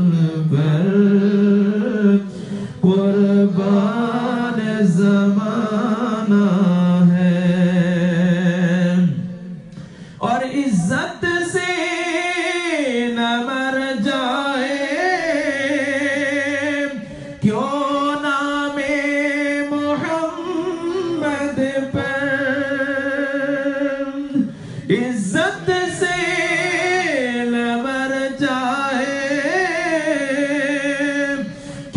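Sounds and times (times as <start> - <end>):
man singing unaccompanied: 0.0 - 9.6, 10.2 - 31.9.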